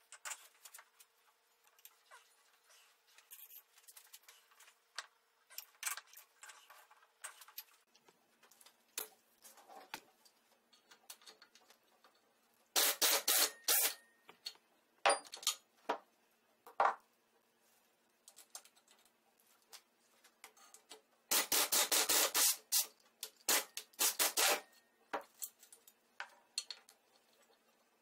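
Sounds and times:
pneumatic wrench bursts: 12.8 - 14.0, 21.3 - 22.9, 23.5 - 24.6.

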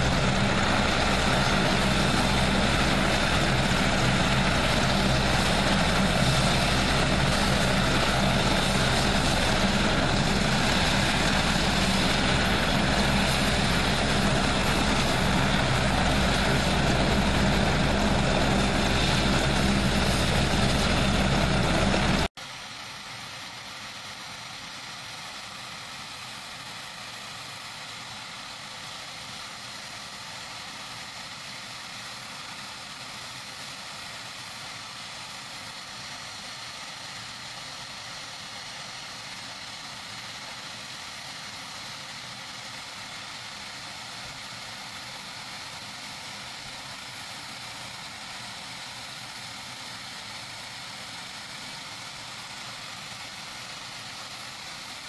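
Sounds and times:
helicopter engines and rotor: 0.0 - 22.3.

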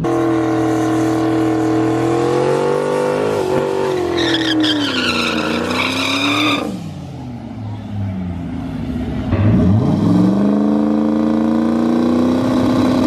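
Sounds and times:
car engine at high revs: 0.0 - 13.0
tire squeal: 3.1 - 6.9.

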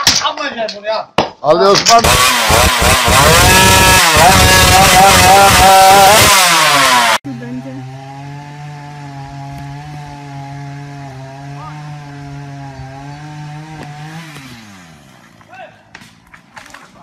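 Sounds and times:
chainsaw engine revving high: 2.0 - 15.5
chainsaw engine running steadily: 2.0 - 16.4.

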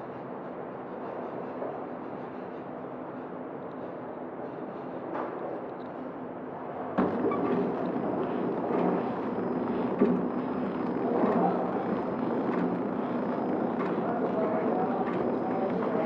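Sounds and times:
machine clicks and knocks: 7.0 - 16.0
packaging machine humming: 7.0 - 16.0.

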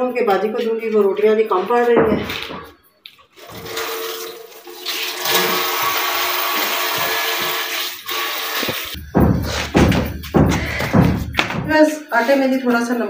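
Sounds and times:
tap water running into a sink: 3.4 - 9.0.

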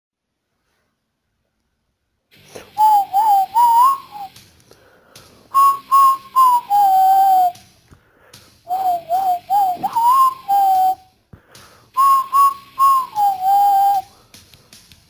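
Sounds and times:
person whistling a tune: 2.5 - 4.4, 5.5 - 7.7, 8.6 - 14.2.

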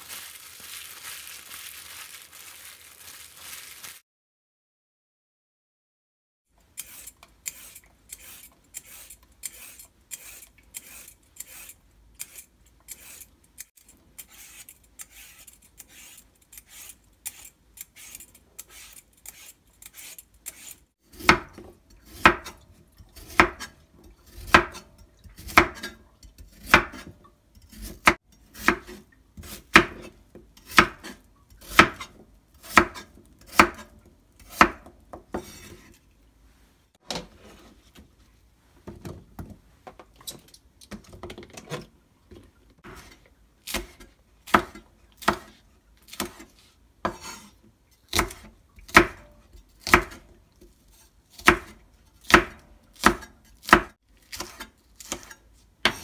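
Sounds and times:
peeler scraping vegetables: 6.6 - 21.4, 27.7 - 36.0, 53.5 - 56.0.

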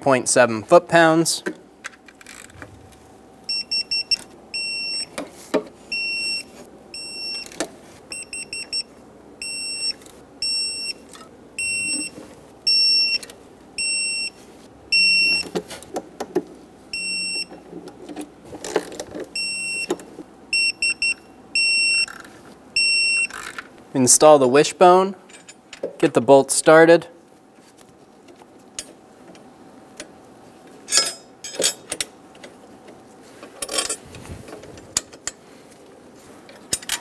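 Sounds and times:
torque wrench beeping: 11.6 - 12.1, 12.7 - 15.5.

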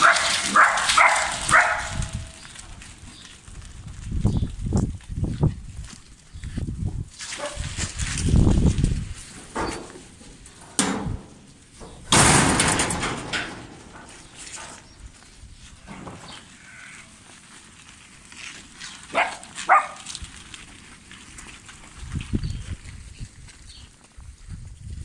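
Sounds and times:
short animal calls: 16.6 - 17.1.

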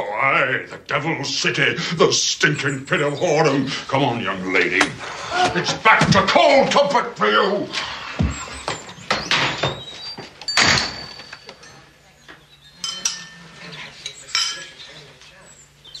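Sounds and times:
teacups and cutlery clinking: 12.8 - 15.1.

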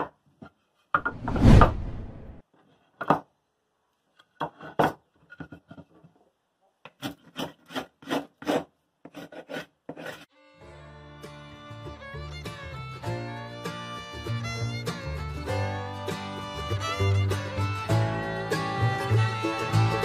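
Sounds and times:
fiddle and guitar music: 10.3 - 20.0.

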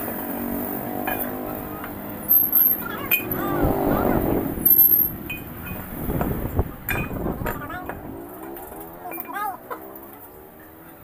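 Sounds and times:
vehicle engine running: 0.0 - 11.0
metal parts clinking: 2.3 - 3.3, 4.6 - 5.4.

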